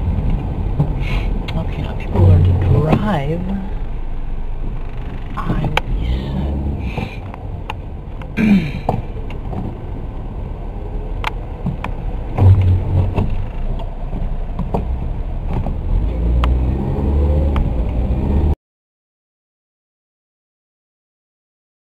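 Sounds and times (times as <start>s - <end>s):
engine and tyre rumble: 0.0s - 18.6s
heavy knocks: 11.7s - 13.5s.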